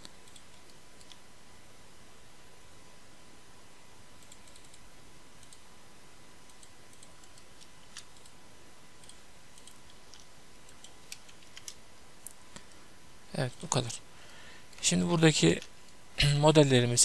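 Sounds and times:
computer mouse clicks: 0.0s - 1.2s, 4.2s - 5.6s, 6.5s - 8.4s, 9.0s - 12.8s
faint steady hiss: 0.0s - 17.0s.

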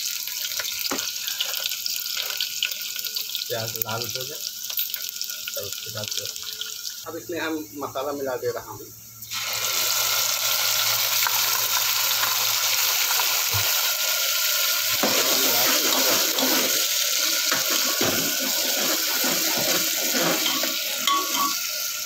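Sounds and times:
paste sizzling in hot oil: 0.0s - 8.2s, 9.2s - 22.0s
spoon scraping and stirring pot: 15.0s - 16.9s, 17.5s - 21.7s.

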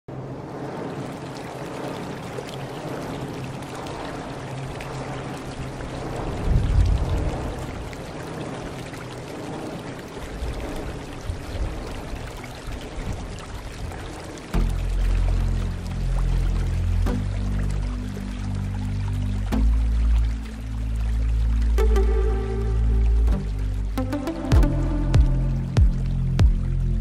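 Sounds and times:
music with deep bass: 14.6s - 27.0s.

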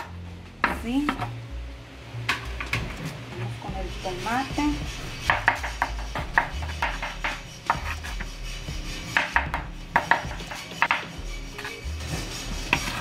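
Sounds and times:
knife chopping on wooden board: 5.2s - 8.3s, 9.1s - 11.7s.

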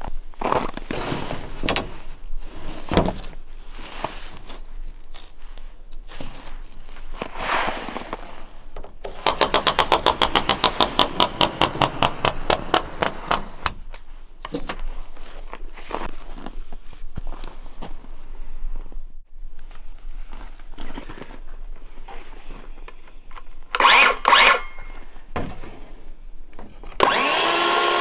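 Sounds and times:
scraping and crunching on snow: 0.0s - 2.9s, 3.6s - 8.7s, 14.8s - 17.9s
tool ticking over ceiling panel grooves: 9.1s - 13.6s.

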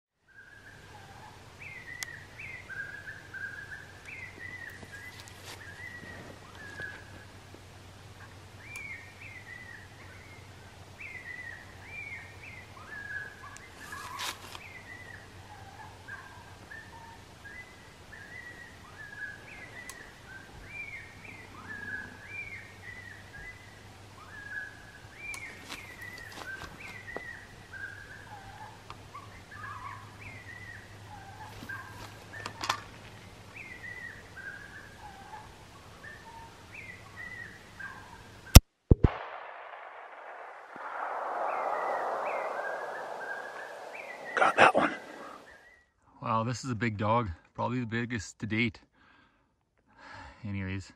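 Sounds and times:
bird-like chirping calls: 40.6s - 45.8s.

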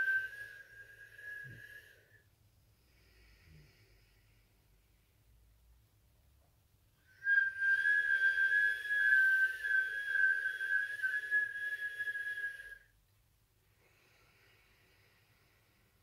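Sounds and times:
woman whistling breath: 0.0s - 2.3s, 7.0s - 12.9s
faint breathing: 0.0s - 5.4s, 13.6s - 16.0s.

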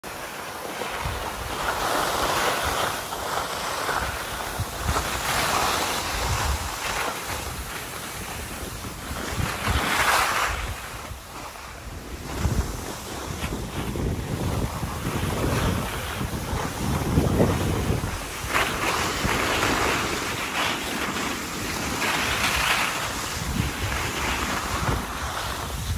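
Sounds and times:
skis scraping over snow: 0.1s - 25.9s
wind buffeting microphone: 0.9s - 25.9s.

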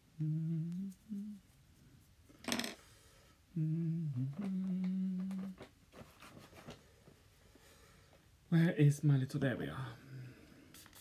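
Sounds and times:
man humming: 0.0s - 1.6s, 3.5s - 5.7s.

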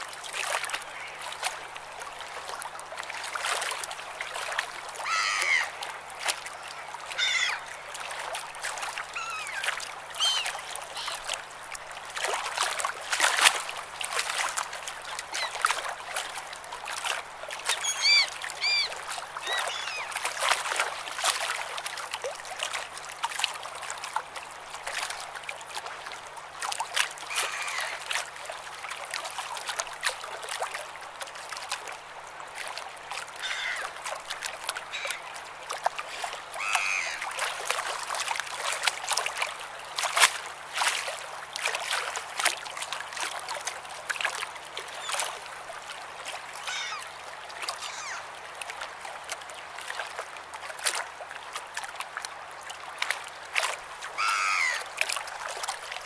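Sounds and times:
sea water splashing at shore: 0.0s - 56.0s
seagull calls: 5.1s - 5.7s, 7.2s - 7.6s, 9.2s - 11.2s, 17.8s - 20.1s, 33.4s - 33.8s, 36.6s - 37.2s, 46.6s - 47.1s, 47.8s - 48.3s, 54.2s - 54.8s.

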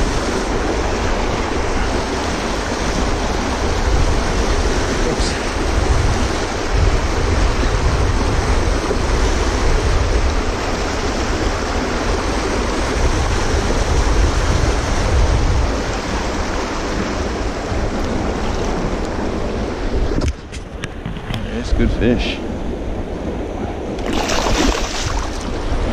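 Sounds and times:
wind rumbling on microphone: 0.0s - 25.9s
river water rushing over rocks: 23.9s - 25.9s.

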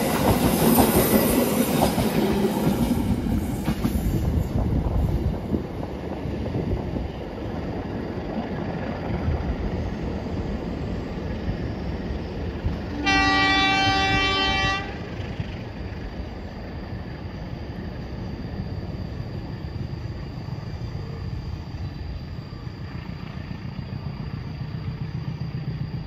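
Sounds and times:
train rumbling: 0.0s - 26.0s
locomotive horn blast: 12.9s - 15.2s.

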